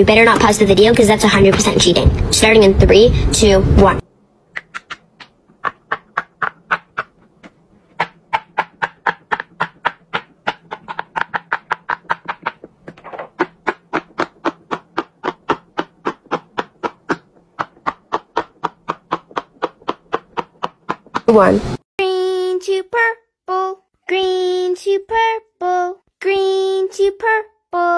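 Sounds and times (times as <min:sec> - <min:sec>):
pop-it toy bubbles popping: 0:08.0 - 0:21.3.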